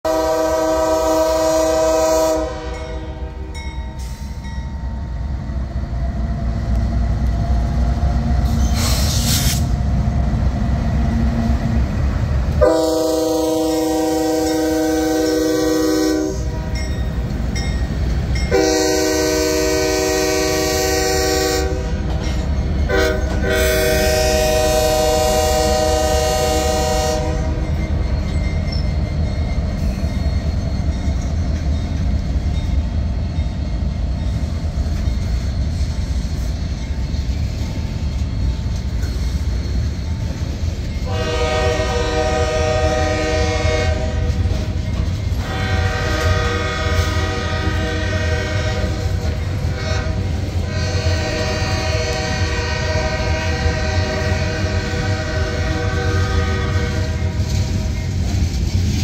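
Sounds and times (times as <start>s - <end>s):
locomotive air horn blasts: 0.0s - 3.6s, 12.6s - 16.8s, 18.5s - 22.1s, 22.9s - 27.6s, 41.0s - 44.6s, 45.4s - 57.6s
diesel locomotive engines rumbling: 0.0s - 59.0s.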